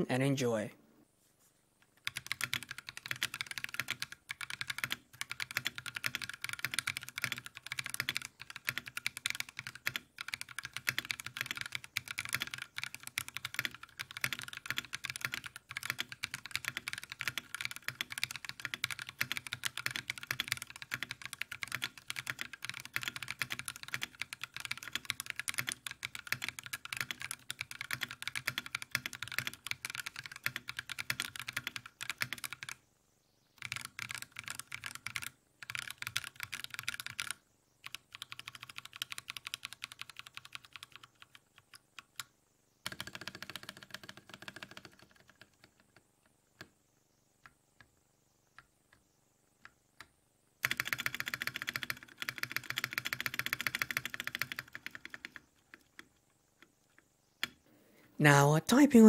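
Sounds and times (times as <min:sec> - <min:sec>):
fast typing on mechanical keyboard: 0:02.0 - 0:32.8, 0:33.6 - 0:46.0, 0:50.6 - 0:56.2.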